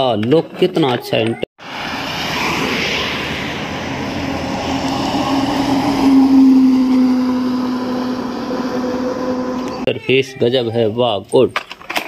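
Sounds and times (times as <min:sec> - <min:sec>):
bus driving past: 0:01.6 - 0:09.9.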